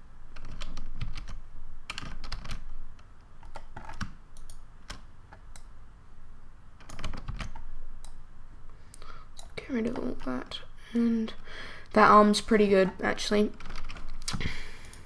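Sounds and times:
computer keyboard clicking: 0:00.4 - 0:02.6, 0:03.4 - 0:05.7, 0:06.8 - 0:08.2, 0:13.6 - 0:14.4.

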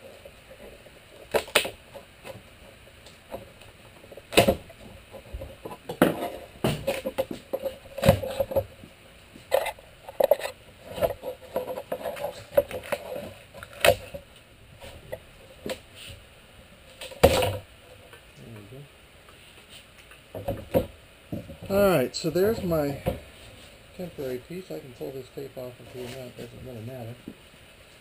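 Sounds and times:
wood creaking and scraping: 0:00.0 - 0:16.2, 0:19.3 - 0:25.1
wood cracking and knocking: 0:00.6 - 0:02.5, 0:03.1 - 0:08.9, 0:17.0 - 0:17.7, 0:20.3 - 0:21.8.

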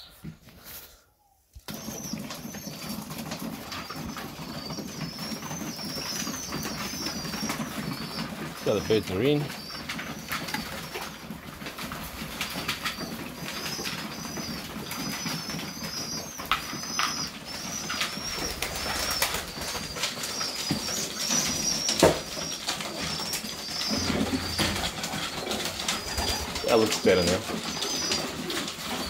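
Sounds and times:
pigeons peeping: 0:00.0 - 0:29.0
sharp taps and clicks: 0:09.6 - 0:26.0.

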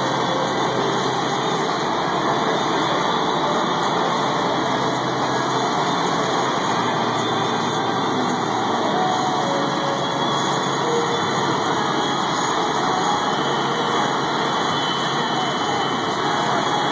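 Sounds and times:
jet engines running: 0:00.0 - 0:16.9.

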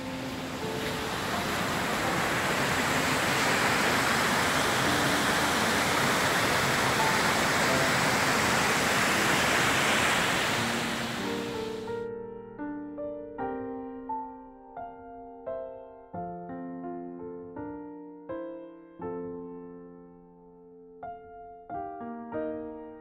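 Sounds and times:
river rapids rushing: 0:00.0 - 0:11.9
faint music notes: 0:00.0 - 0:12.1.

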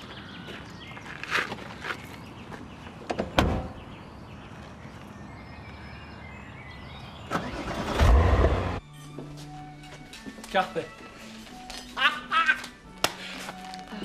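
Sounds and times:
car pulling away on gravel: 0:07.2 - 0:08.8.

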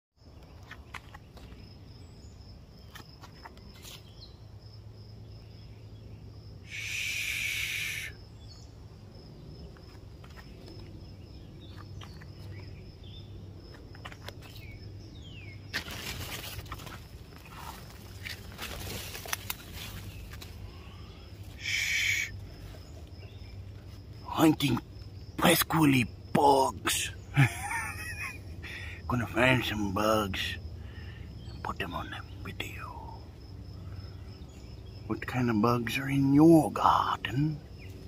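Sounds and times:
pulsing insect trill: 0:01.6 - 0:38.0
loud hissing buzz: 0:06.6 - 0:08.2, 0:20.9 - 0:22.5.

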